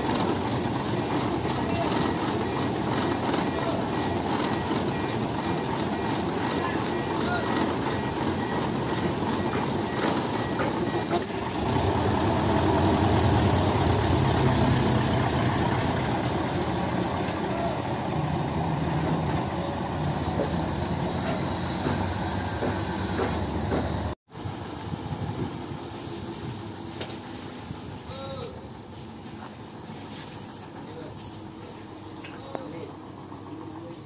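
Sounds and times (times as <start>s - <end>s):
diesel truck engine idling: 0.0s - 24.2s.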